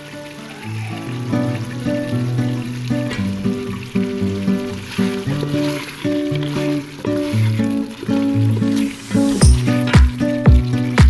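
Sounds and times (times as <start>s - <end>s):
kick drum beat: 9.4s - 10.8s
held chords over bass line: 9.4s - 11.0s.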